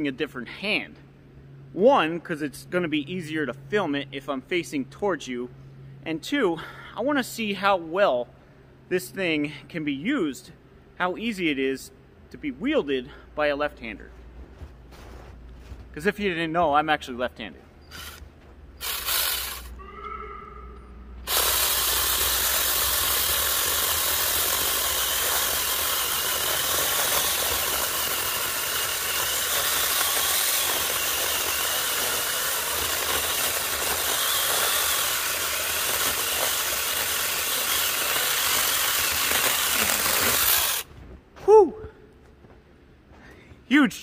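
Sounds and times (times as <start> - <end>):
chainsaw cutting through tree: 18.8 - 19.8, 21.2 - 40.9.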